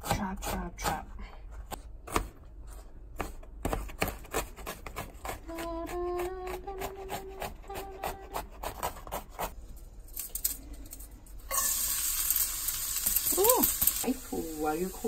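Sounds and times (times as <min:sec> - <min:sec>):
food sizzling in hot oil: 0:11.5 - 0:15.0.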